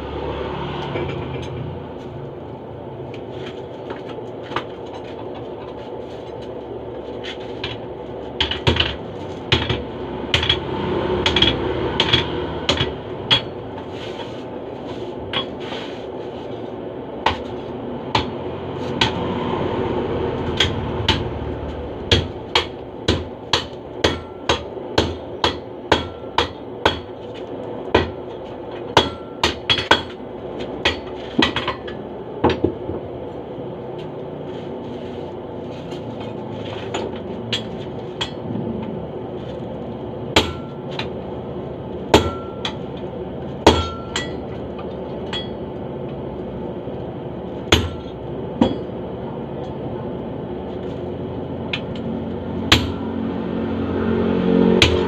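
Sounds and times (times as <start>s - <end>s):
hammers striking steel on anvil: 8.4s - 13.7s, 18.1s - 19.3s, 20.4s - 27.2s, 27.9s - 32.9s, 36.9s - 38.5s, 40.3s - 41.2s, 42.0s - 43.0s, 43.6s - 44.6s, 45.3s - 45.6s, 47.7s - 49.0s, 51.7s - 53.2s, 54.7s - 55.0s.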